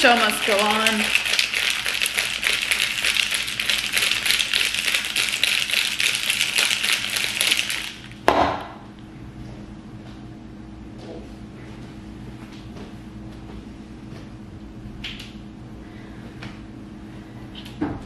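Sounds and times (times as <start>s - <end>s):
ice rattling in cocktail shaker: 0.0s - 8.2s.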